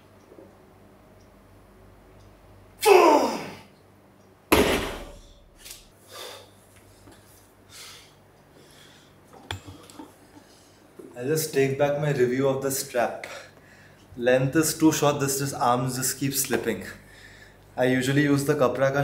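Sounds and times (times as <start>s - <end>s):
barbell thudding on floor: 4.5s - 5.4s.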